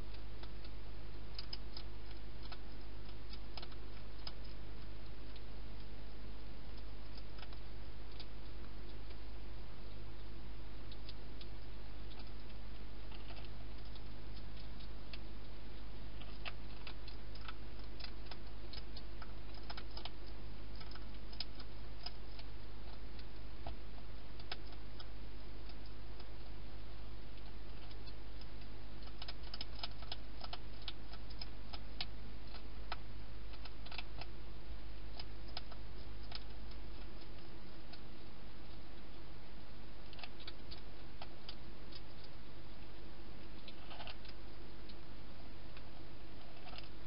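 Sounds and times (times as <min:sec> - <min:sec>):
steady low hum: 0:00.0 - 0:47.0
hedgehog crunching food: 0:10.9 - 0:26.6, 0:27.3 - 0:34.4, 0:35.0 - 0:39.2, 0:40.0 - 0:42.4, 0:43.5 - 0:45.0, 0:45.7 - 0:47.0.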